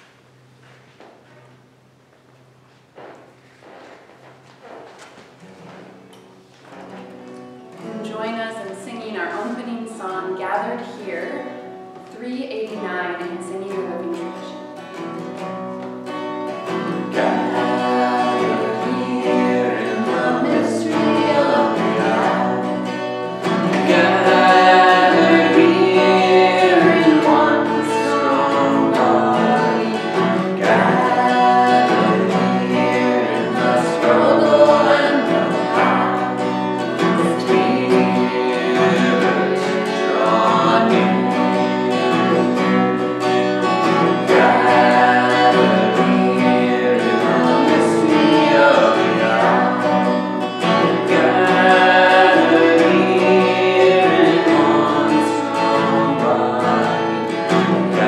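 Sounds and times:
strummed acoustic guitar: 0.0s - 58.0s
man and woman singing a hymn: 16.5s - 58.0s.

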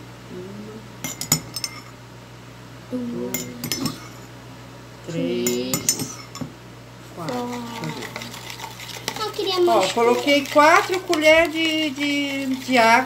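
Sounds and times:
person humming: 0.3s - 1.0s, 2.9s - 3.8s, 5.1s - 6.0s, 7.2s - 8.2s
spoon clinking against bowls: 1.0s - 1.9s, 3.3s - 4.3s, 5.4s - 6.5s, 7.3s - 13.0s.

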